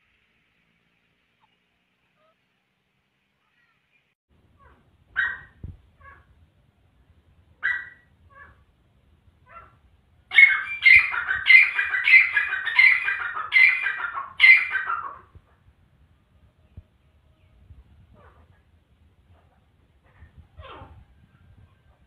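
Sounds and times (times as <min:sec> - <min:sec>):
bird calling repeated phrases: 0:10.3 - 0:15.2.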